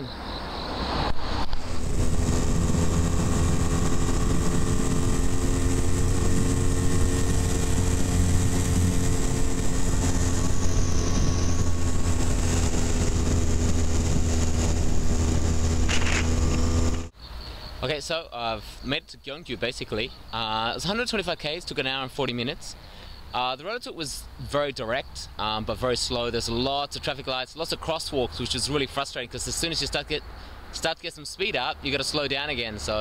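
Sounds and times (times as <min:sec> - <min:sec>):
road and wind noise: 0:00.0 - 0:33.0
motorcycle engine cruising: 0:00.6 - 0:17.2.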